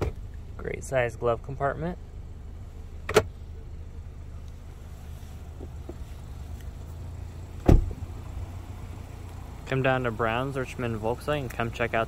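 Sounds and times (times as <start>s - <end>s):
low steady rumble: 0.0s - 12.0s
glove compartment lid clicking shut: 3.0s - 3.3s
car door shutting with a thud: 7.6s - 8.1s.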